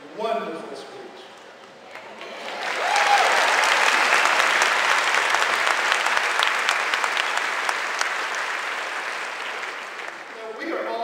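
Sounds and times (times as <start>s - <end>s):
audience applauding: 1.9s - 10.6s.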